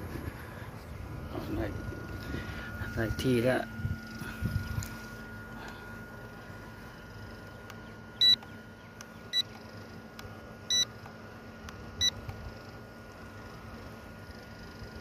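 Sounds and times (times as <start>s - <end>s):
remote control electronic beeps: 8.2s - 8.5s.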